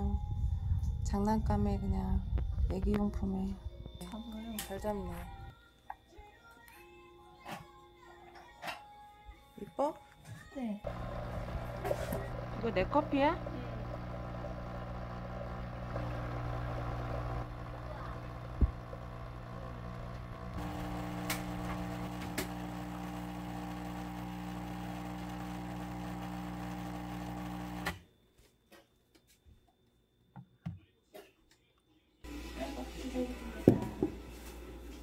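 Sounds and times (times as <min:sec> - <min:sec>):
coffee machine pump buzzing: 0:10.9 - 0:28.0.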